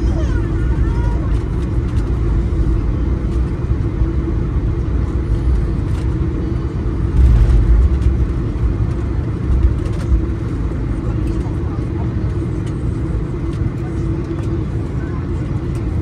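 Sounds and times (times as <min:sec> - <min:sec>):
low rumble of rolling airplane: 0:00.0 - 0:16.0
steady hum: 0:00.0 - 0:16.0.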